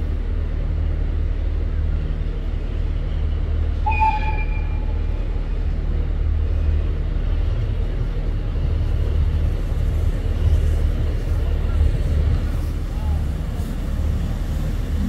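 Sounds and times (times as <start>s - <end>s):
idling train engine rumble: 0.0s - 15.0s
short high tone: 3.9s - 5.1s.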